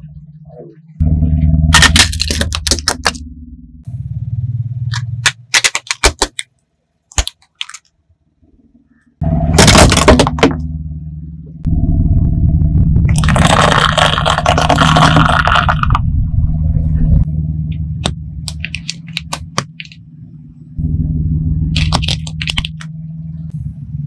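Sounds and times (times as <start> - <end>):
car engine rumbling: 0.0 - 24.0
loud crunch: 1.7 - 3.2, 13.1 - 16.0
plastic toys cracking under tyre: 1.8 - 3.2, 4.9 - 6.5, 7.1 - 7.9, 9.6 - 10.6, 13.1 - 16.0, 21.8 - 22.9.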